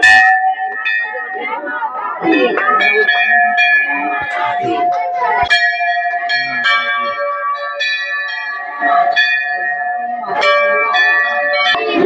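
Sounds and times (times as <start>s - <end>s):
brass bells ringing: 0.0s - 12.0s.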